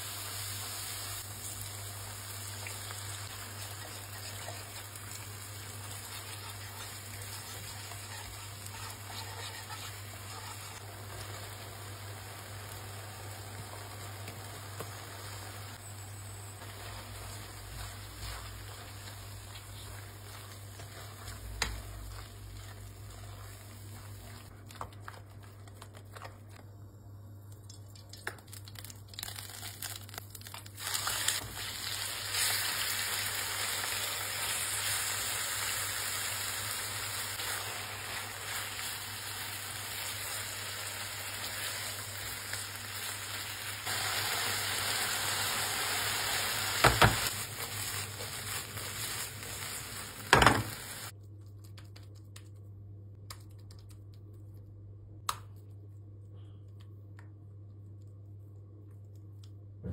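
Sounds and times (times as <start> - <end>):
chicken sizzling in oil: 0.0 - 24.5, 29.2 - 51.2
spatula scraping in pan: 5.8 - 10.8.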